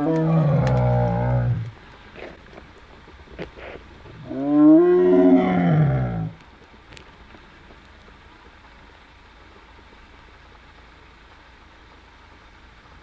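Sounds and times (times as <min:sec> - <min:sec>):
tiger roaring: 0:00.0 - 0:01.7, 0:03.6 - 0:06.4.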